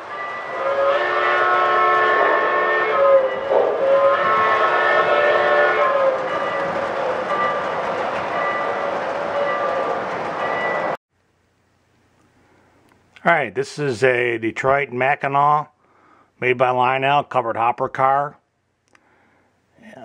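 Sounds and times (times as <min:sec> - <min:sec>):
steam chime whistle: 0:00.0 - 0:07.7.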